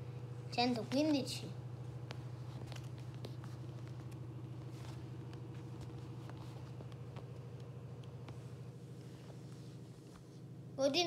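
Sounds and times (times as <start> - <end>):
low hum: 0.0 - 11.0.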